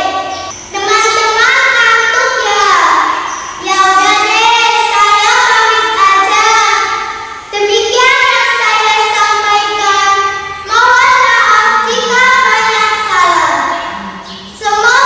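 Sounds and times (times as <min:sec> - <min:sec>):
girl singing: 0:07.6 - 0:14.0, 0:14.6 - 0:15.0.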